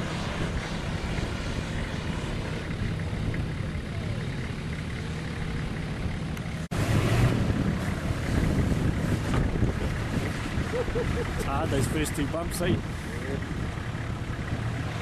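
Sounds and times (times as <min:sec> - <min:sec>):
vehicle engine running: 0:00.0 - 0:15.0
wind on microphone: 0:06.8 - 0:12.0.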